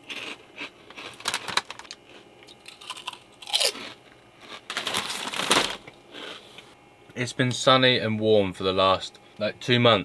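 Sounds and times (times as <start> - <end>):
crisps crunching and chewing: 0.0 - 6.4
crisp packet crinkling: 0.9 - 5.8.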